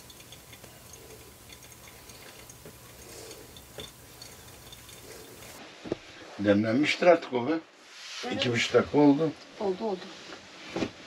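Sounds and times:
faint ticks and clicks: 0.0 - 5.6
low steady hum: 0.0 - 6.1.

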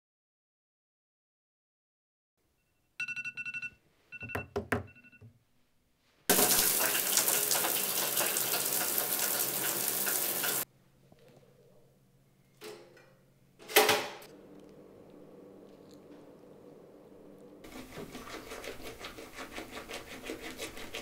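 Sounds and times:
phone alarm beeping: 2.6 - 5.4
shower running: 6.3 - 10.7.

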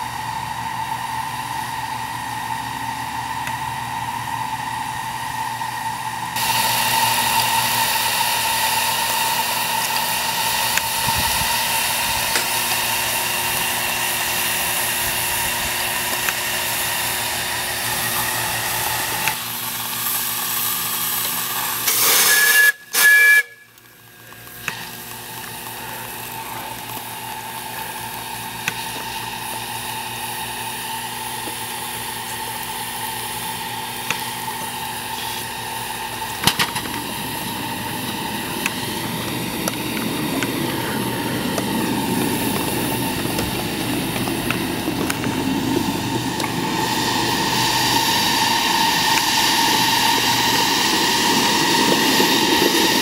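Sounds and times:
steam hissing: 0.0 - 53.0
steam whistle toots: 21.6 - 24.1, 46.4 - 52.9.

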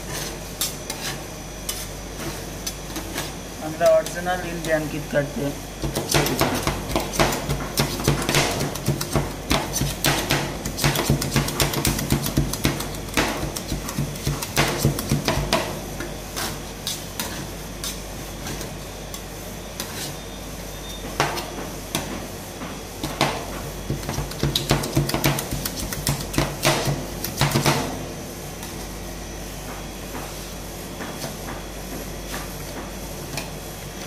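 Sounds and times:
steady low hum: 0.0 - 34.0
metal spatulas chopping and scraping: 5.8 - 15.6.

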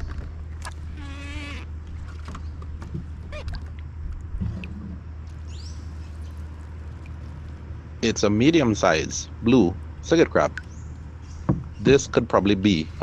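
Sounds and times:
water dripping and splashing: 0.0 - 8.0, 9.8 - 11.8
steady low hum: 0.0 - 13.0
animal call with wavering pitch: 0.7 - 1.7.

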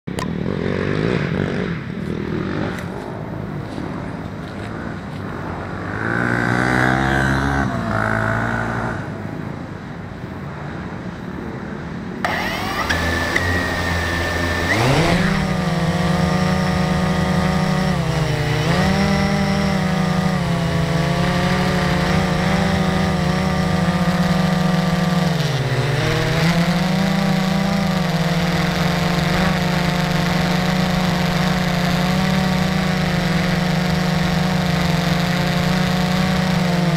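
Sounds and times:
drone propellers buzzing: 12.2 - 36.9.

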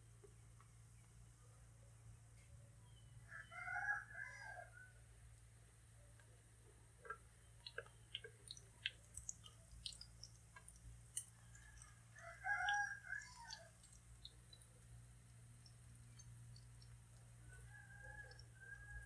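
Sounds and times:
rooster crowing: 3.3 - 4.9, 11.6 - 13.7.

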